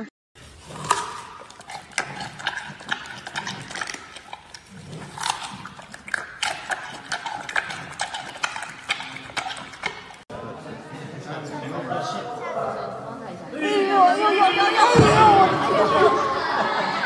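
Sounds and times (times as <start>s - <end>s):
panda chewing bamboo: 0.4s - 10.3s.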